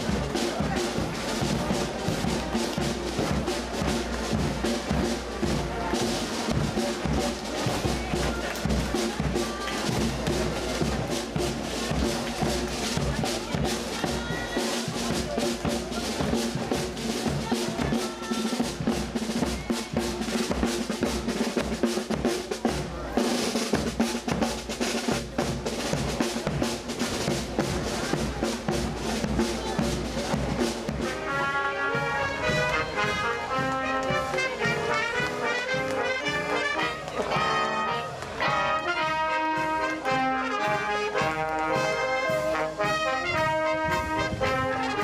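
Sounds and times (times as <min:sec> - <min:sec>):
trumpets and trombones melody: 0:00.0 - 0:13.0, 0:30.1 - 0:45.0
snare and bass drums marching beat: 0:00.0 - 0:45.0.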